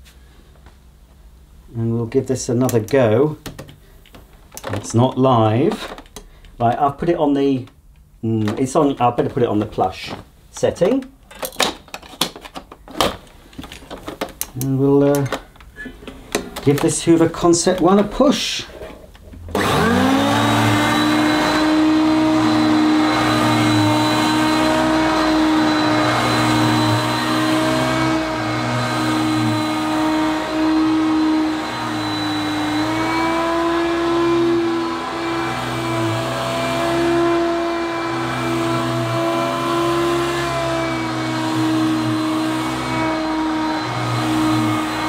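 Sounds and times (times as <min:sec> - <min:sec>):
vacuum cleaner motor running: 0:19.5 - 0:45.0.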